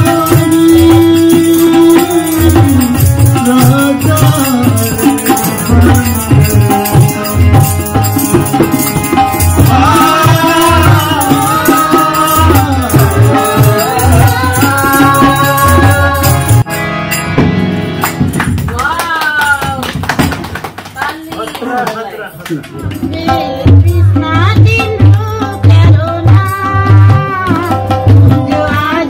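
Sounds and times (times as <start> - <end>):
person singing: 0.0 - 8.0, 9.5 - 16.7
hand drum beat: 0.0 - 16.8, 22.7 - 29.0
rattling percussion: 0.0 - 21.5, 22.5 - 29.0.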